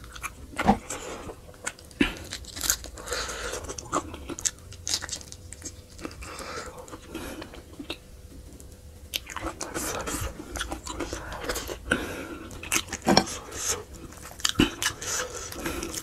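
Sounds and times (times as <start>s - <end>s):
crunchy bites: 0.0s - 8.0s
man chewing wetly: 0.0s - 16.0s.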